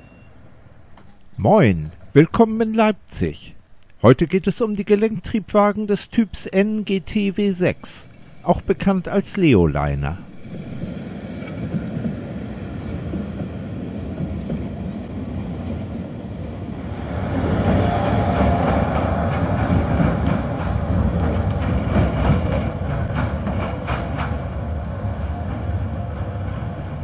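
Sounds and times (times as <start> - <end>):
trams rumbling on rails: 7.1 - 27.0.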